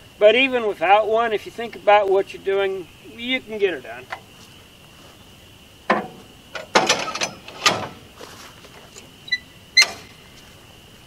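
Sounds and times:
log knocking on steel bed: 0:05.9 - 0:08.0.

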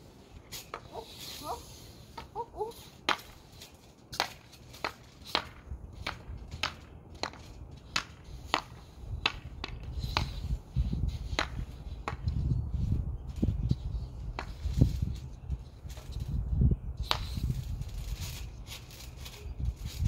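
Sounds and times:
hockey stick tapping puck: 0:04.2 - 0:10.3, 0:11.4 - 0:12.3.

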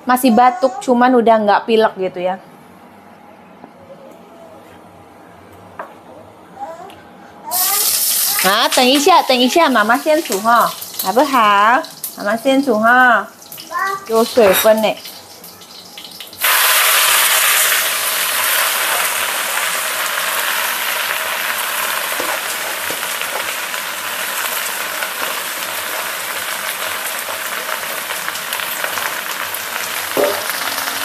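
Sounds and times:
vegetables sizzling in a wok: 0:07.5 - 0:31.0.

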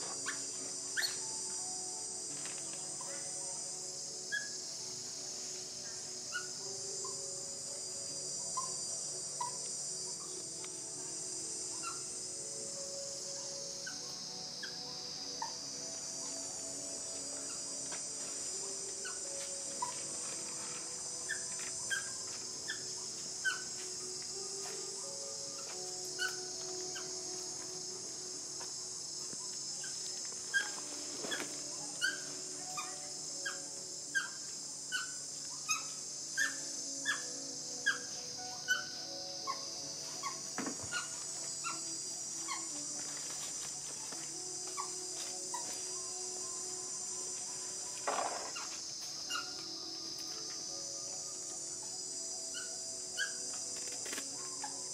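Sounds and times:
high-pitched insect drone: 0:00.0 - 0:54.9
baby monkey squeaking: 0:01.0 - 0:01.2, 0:11.7 - 0:12.0, 0:19.8 - 0:20.0, 0:21.3 - 0:22.8, 0:23.4 - 0:23.7, 0:30.5 - 0:30.8, 0:32.0 - 0:42.7, 0:44.8 - 0:45.7, 0:48.2 - 0:49.6, 0:52.5 - 0:53.5.

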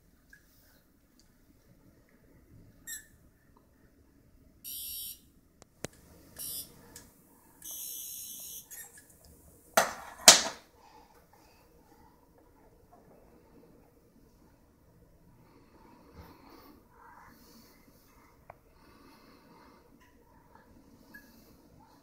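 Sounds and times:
toy electronic buzz: 0:04.7 - 0:05.2, 0:06.4 - 0:06.7, 0:07.6 - 0:08.9.

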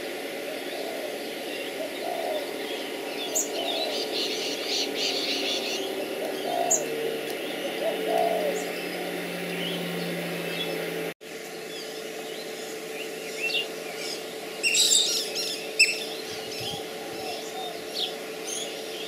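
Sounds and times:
bird rise-and-fall call: 0:00.6 - 0:10.9, 0:12.4 - 0:19.0
high bird chirping: 0:12.4 - 0:19.0.

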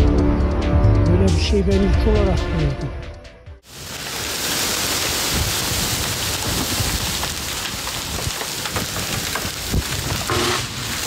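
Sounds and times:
heavy rain downpour: 0:03.6 - 0:11.0
hail knocking: 0:03.7 - 0:11.0.

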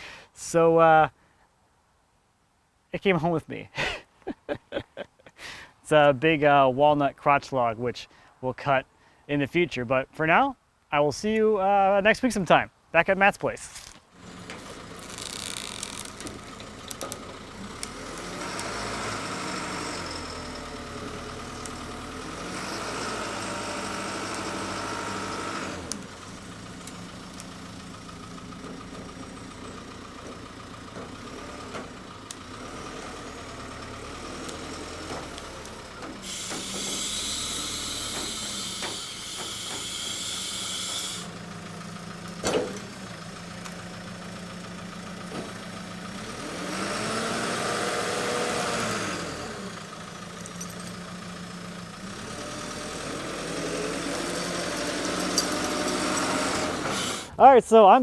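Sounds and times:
diesel engine running: 0:14.1 - 0:57.4
loud hiss: 0:36.2 - 0:41.4.

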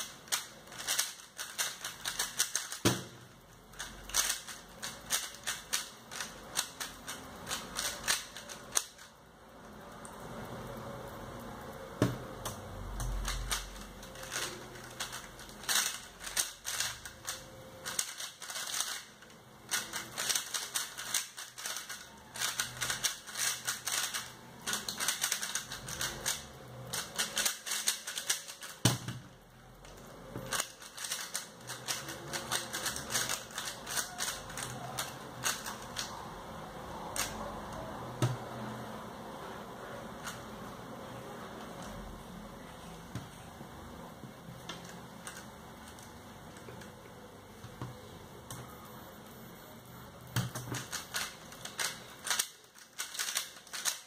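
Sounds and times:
puzzle cube clicking as turned: 0:00.3 - 0:03.1, 0:13.2 - 0:19.1, 0:19.7 - 0:28.8, 0:30.5 - 0:36.1, 0:50.4 - 0:54.0.

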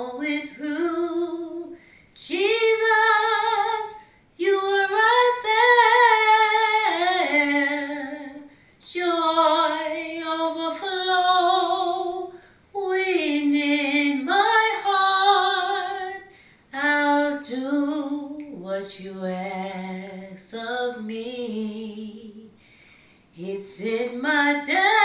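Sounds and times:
woman singing unaccompanied: 0:00.0 - 0:22.6, 0:23.4 - 0:25.0.

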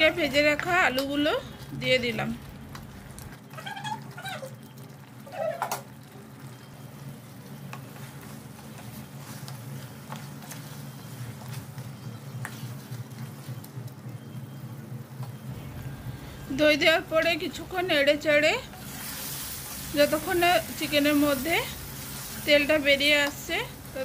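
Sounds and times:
wooden spatula stirring curry: 0:06.3 - 0:13.8
steady low hum: 0:06.8 - 0:24.0.

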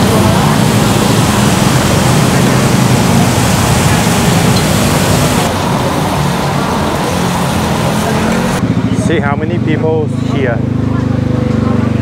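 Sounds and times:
oil deep-frying: 0:00.0 - 0:08.6.

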